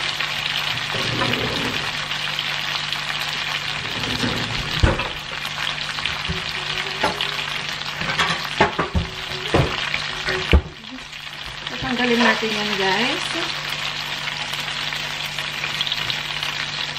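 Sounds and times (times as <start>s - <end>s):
meat sizzling in oil: 0.0s - 16.9s.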